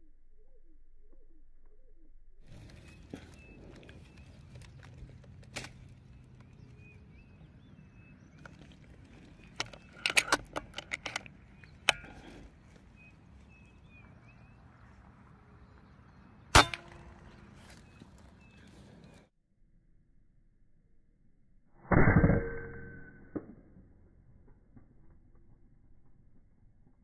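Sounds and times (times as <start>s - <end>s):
sharp clicks and knocks: 9.3s - 12.4s
air rifle shot: 16.5s - 17.4s.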